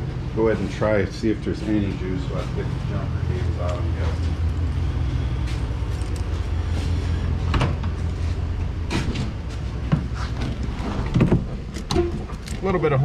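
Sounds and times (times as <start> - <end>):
vehicle engine idling hum: 0.0 - 13.0
car door opening: 10.0 - 12.9.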